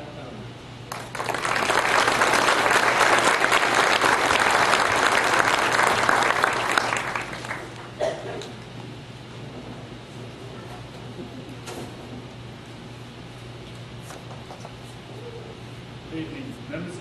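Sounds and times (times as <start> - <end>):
audience applauding: 0.9 - 8.0.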